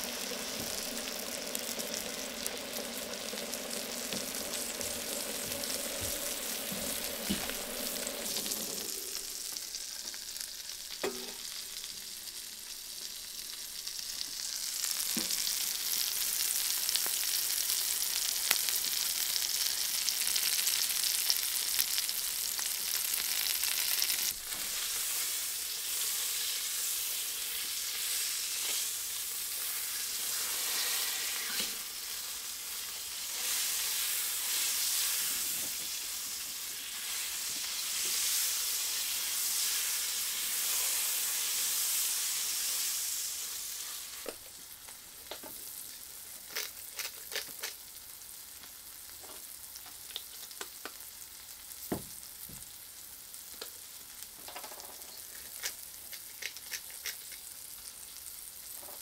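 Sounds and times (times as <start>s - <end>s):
food sizzling in a pan: 0.0s - 59.0s.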